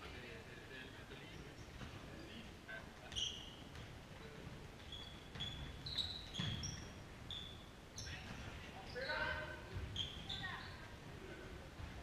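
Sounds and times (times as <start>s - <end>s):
shoes squeaking on a floor: 3.0s - 11.1s.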